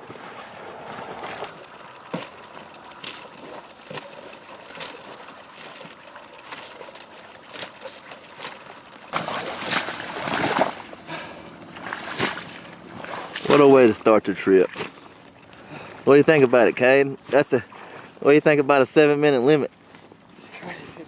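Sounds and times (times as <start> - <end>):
small water splashes and ticks: 0.0 - 21.0
wading through shallow water: 0.0 - 21.0.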